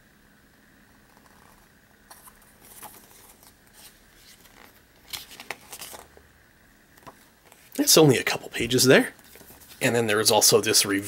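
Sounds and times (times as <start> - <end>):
paper pages rustling: 1.2 - 6.2, 9.2 - 9.9.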